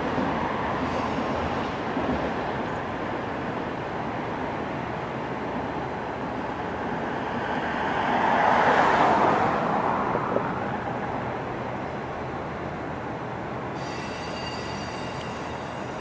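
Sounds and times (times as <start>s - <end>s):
rail yard and traffic noise: 0.0s - 16.0s
vehicle passing: 7.0s - 11.4s.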